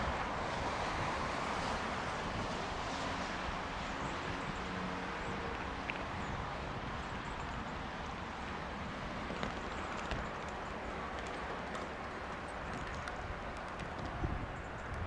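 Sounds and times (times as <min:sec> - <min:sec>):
faint clicks: 0:09.3 - 0:15.0.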